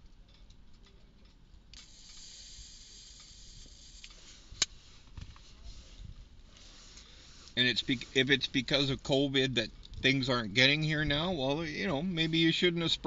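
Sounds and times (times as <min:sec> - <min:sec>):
lighter flame hissing: 0:01.8 - 0:08.1.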